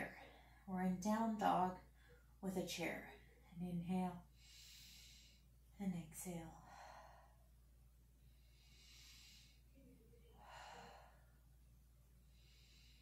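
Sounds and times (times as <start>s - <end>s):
soft breathing: 0.0s - 0.8s, 1.8s - 2.4s, 4.2s - 13.0s
steady low hum: 0.0s - 13.0s.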